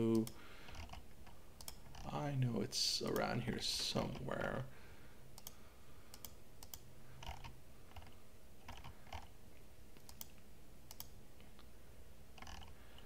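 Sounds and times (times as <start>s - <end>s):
faint steady hum: 0.0s - 13.0s
computer mouse clicks: 0.1s - 2.1s, 5.4s - 9.3s, 10.0s - 11.7s, 12.4s - 13.0s.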